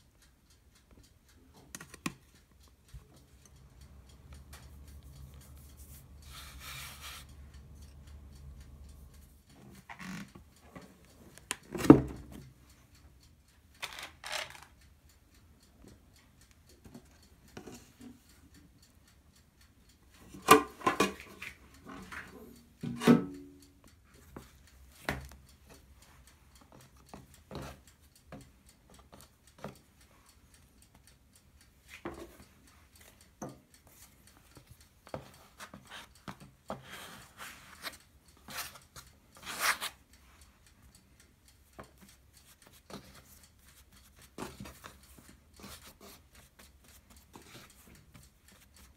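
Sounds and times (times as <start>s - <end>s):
hands patting and rubbing dough: 4.9s - 7.2s.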